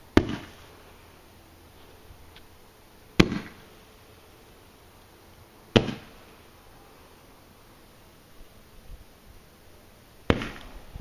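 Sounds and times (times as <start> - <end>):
roman candle firing pop: 3.2 - 3.6, 5.7 - 6.1, 10.3 - 10.8.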